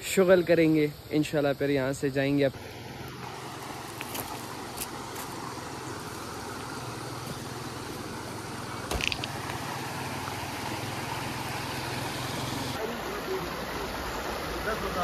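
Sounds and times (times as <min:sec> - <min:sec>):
flowing water rushing: 0:00.0 - 0:15.0.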